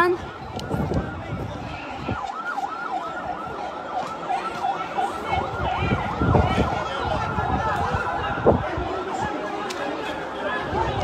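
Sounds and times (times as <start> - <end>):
siren yelping: 0.0 - 9.1.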